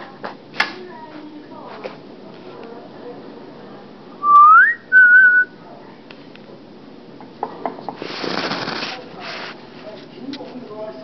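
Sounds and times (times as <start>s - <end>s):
person whistling: 4.2s - 5.5s.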